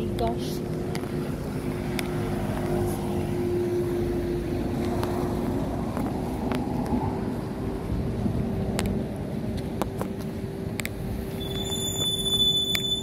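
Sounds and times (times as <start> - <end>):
traffic engine drone: 0.0 - 13.0.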